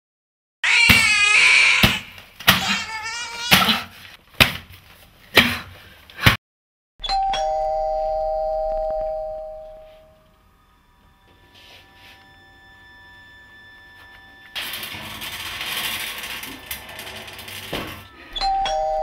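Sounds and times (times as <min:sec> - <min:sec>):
woman screaming: 0:00.6 - 0:02.0, 0:02.6 - 0:03.8
two-tone doorbell ringing: 0:07.0 - 0:14.4, 0:18.1 - 0:19.0.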